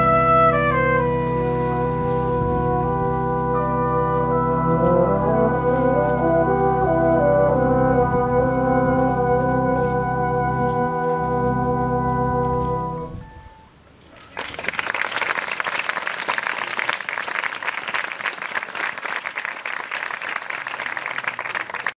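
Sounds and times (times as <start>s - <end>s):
brass band chord: 0.0s - 13.6s
audience applause: 14.3s - 21.9s.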